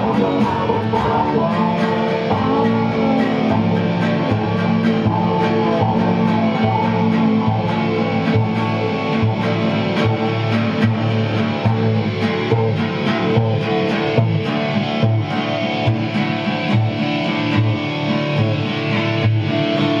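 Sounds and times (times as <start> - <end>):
guitars playing: 0.0 - 20.0.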